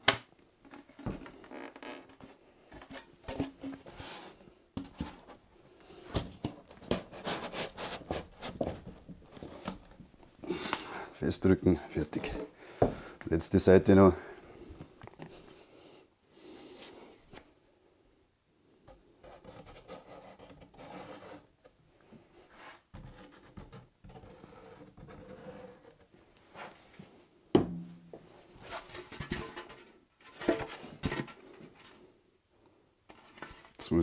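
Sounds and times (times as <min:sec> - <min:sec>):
polystyrene rubbing and scraping: 0:07.1 - 0:08.6.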